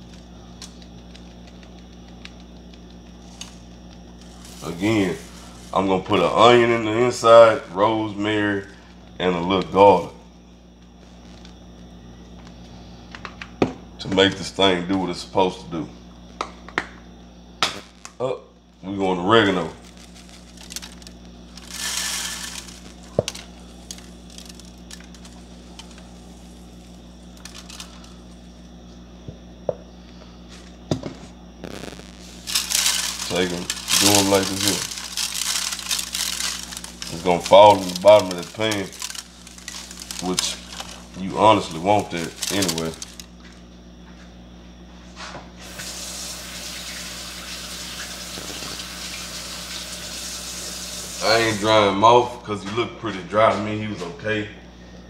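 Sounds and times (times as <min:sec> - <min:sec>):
steady low hum: 0:00.0 - 0:55.0
water running into sink: 0:45.7 - 0:51.2.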